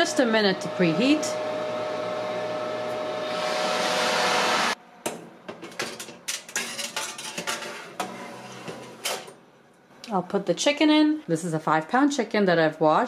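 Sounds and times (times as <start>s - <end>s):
oven fan humming: 0.0s - 9.8s
metal pans clattering on rack: 5.5s - 9.4s.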